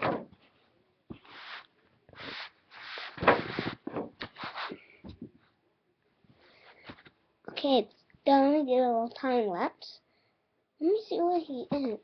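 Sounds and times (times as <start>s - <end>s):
rustling and scraping: 0.0s - 5.5s.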